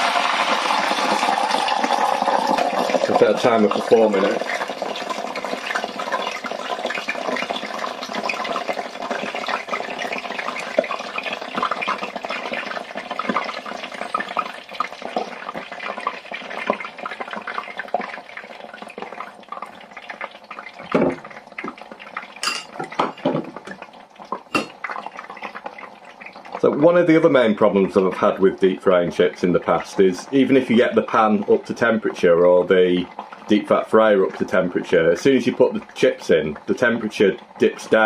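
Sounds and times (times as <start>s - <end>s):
chips sizzling in hot oil: 0.0s - 31.4s.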